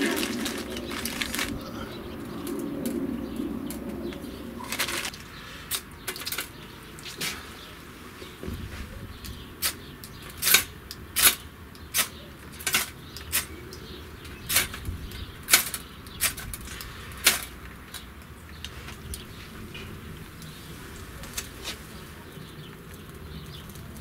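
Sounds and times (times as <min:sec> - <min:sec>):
kindling snapping: 0:00.0 - 0:07.4, 0:09.2 - 0:14.9.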